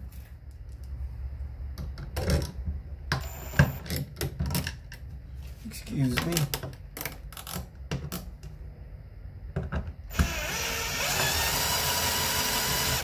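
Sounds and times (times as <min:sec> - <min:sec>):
cordless drill driving screw: 0:10.1 - 0:13.0.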